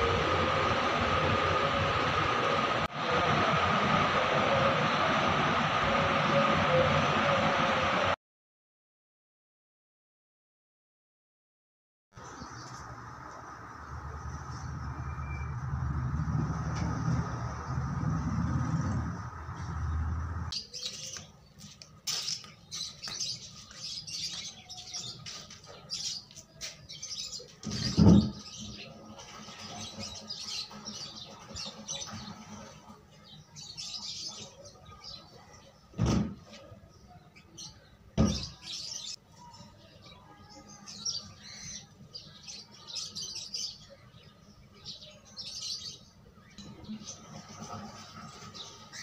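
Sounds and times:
small birds chirping: 20.5 - 35.9.

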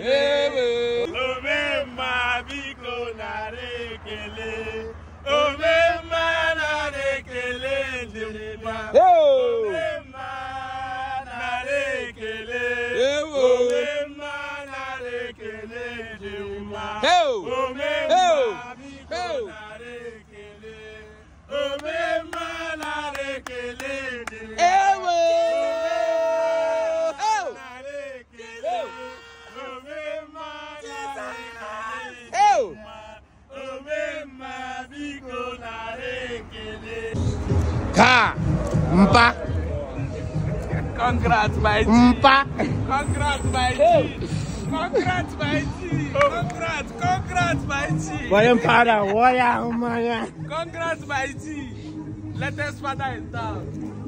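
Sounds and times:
men chanting and singing: 0.0 - 54.0.

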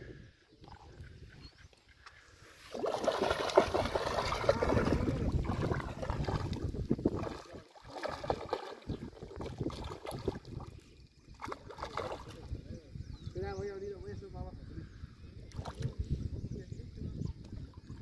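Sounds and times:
fish splashing in water: 2.6 - 12.5.

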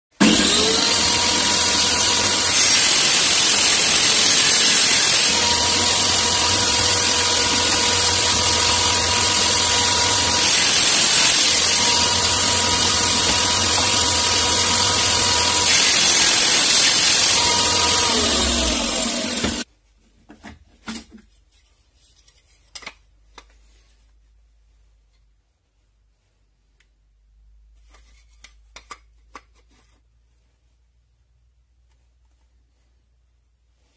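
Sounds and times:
table saw cutting wood: 0.1 - 19.7
saw motor hum: 0.2 - 19.6.

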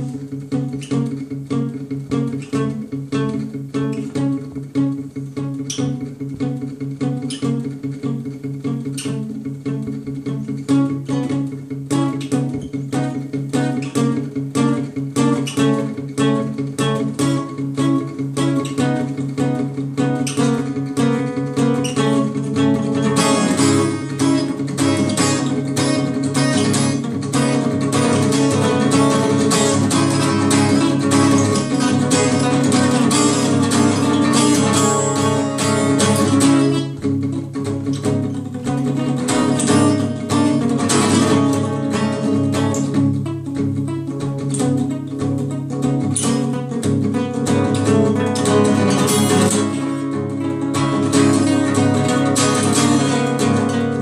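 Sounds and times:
acoustic guitar picking: 0.0 - 54.0.

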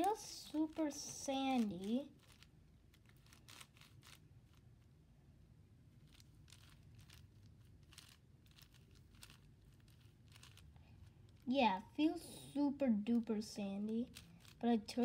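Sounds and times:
plastic puzzle cube clicking: 1.6 - 4.6, 6.1 - 10.7, 14.1 - 14.6.

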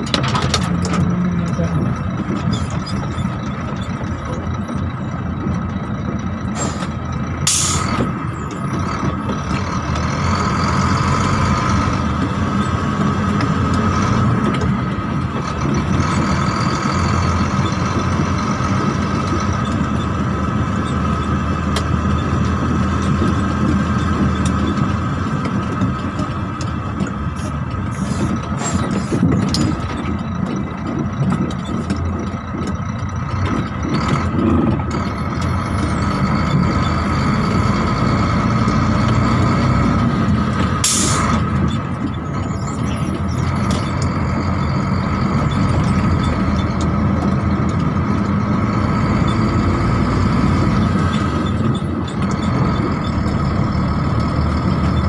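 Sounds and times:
truck diesel engine running: 0.0 - 55.0
air brake hiss: 40.9 - 41.2.

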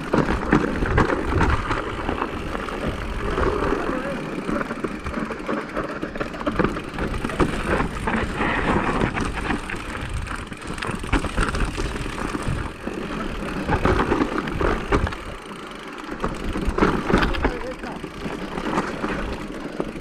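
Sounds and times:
bike rattling and knocking: 0.0 - 20.0
tyres crunching over stones: 0.0 - 20.0
wind rumble on microphone: 6.6 - 12.8.

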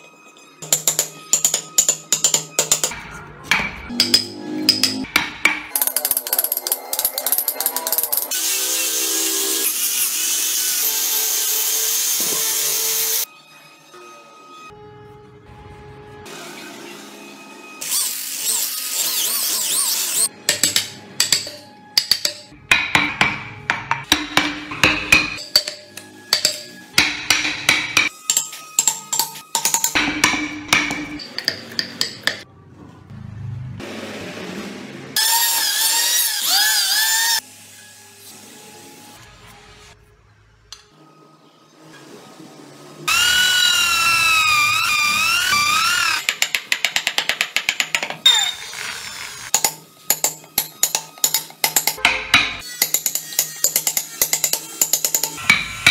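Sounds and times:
hammer striking wood chisel: 0.6 - 8.2, 20.4 - 32.4, 45.6 - 48.3, 49.5 - 55.9
electric drill boring into wood: 43.1 - 46.3.

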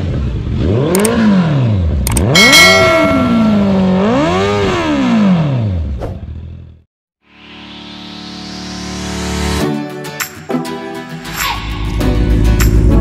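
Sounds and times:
motorcycle engine revving: 0.0 - 6.8
click: 0.9 - 1.1, 2.0 - 2.3
bell ding: 2.2 - 4.2.

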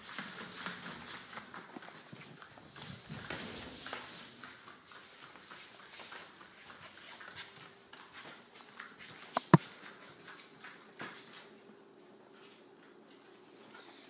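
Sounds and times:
dog footsteps soft taps: 7.9 - 11.5.

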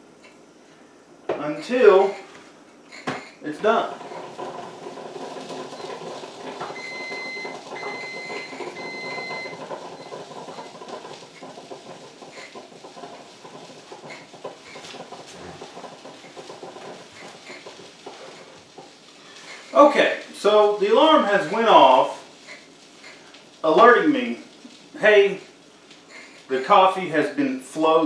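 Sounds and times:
coffee maker crackling and gurgling: 1.3 - 28.0
high-pitched alarm beeps: 6.7 - 10.7.

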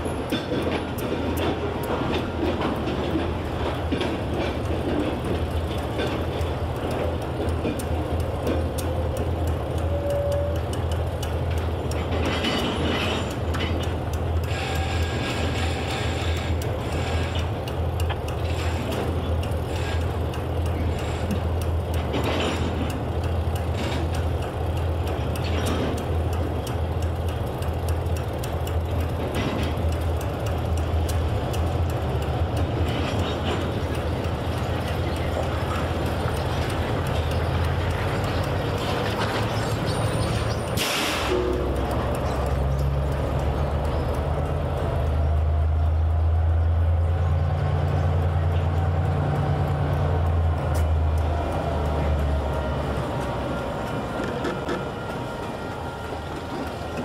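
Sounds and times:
diesel locomotive rumbling: 0.0 - 57.0
metal clanks and knocks: 11.5 - 17.5, 20.8 - 24.4.

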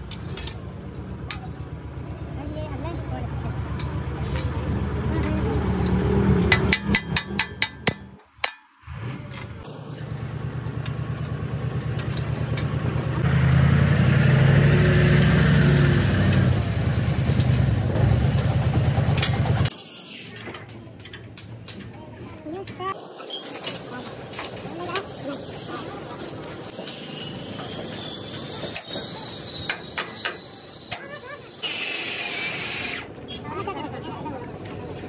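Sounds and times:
engine running: 0.0 - 7.7, 8.9 - 19.7.

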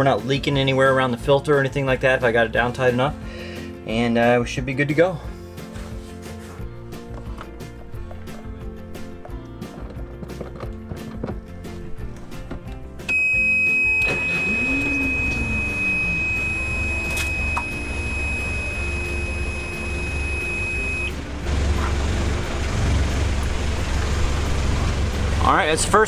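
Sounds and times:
alarm high beep: 13.1 - 21.2
diesel engine cranking and running: 14.0 - 26.0.

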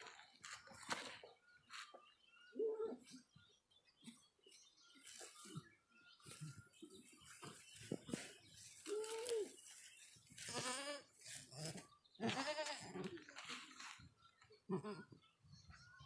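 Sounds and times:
goat bleating: 10.4 - 13.8, 14.7 - 15.2.

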